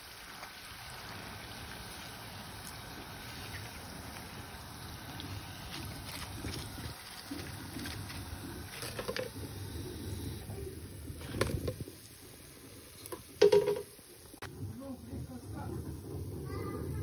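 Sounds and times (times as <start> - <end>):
chips frying in hot oil: 0.0 - 17.0.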